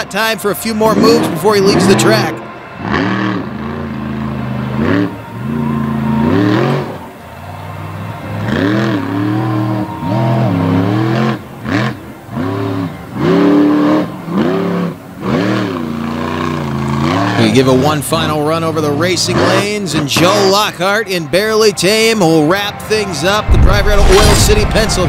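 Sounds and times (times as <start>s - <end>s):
truck engine revving: 0.0s - 20.6s, 23.1s - 25.0s.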